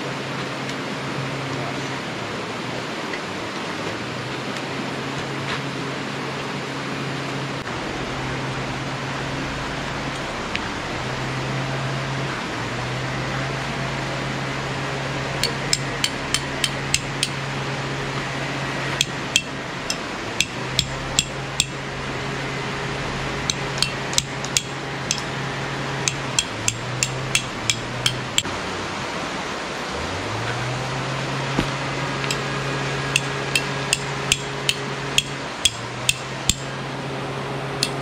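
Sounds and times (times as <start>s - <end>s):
hammer striking tent stake: 15.4s - 17.4s, 19.0s - 21.8s, 23.5s - 25.3s, 26.1s - 28.5s, 33.2s - 36.7s.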